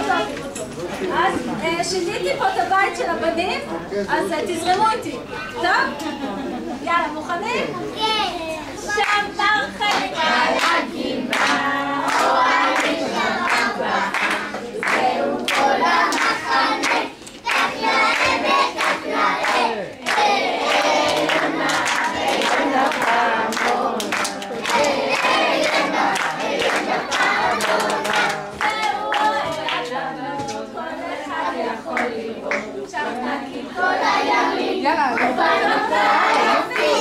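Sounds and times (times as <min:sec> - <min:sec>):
children singing: 0:09.6 - 0:37.0
hand-clapping: 0:09.9 - 0:30.6.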